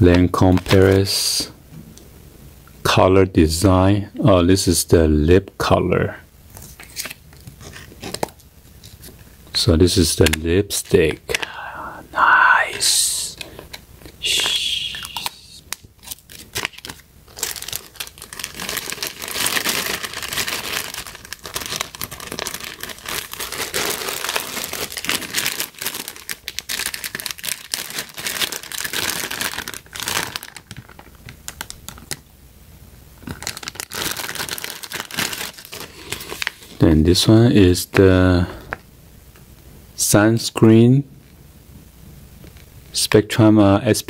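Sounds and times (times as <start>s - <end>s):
plastic bags crinkling: 15.0s - 32.2s, 33.2s - 36.8s.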